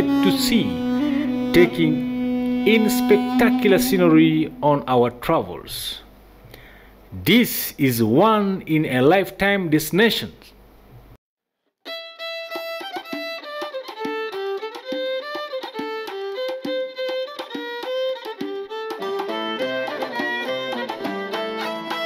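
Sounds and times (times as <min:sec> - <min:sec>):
instrumental music: 0:00.0 - 0:05.2, 0:11.8 - 0:22.0.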